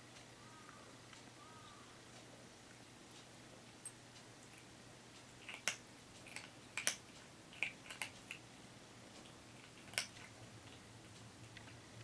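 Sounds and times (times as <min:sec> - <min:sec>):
kitten crunching food: 0:03.5 - 0:12.0.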